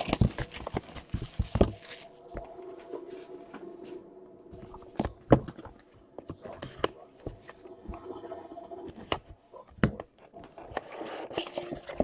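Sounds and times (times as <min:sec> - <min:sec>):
cardboard box being handled: 0:00.0 - 0:02.4
shrink wrap crackling and tearing: 0:00.0 - 0:02.4.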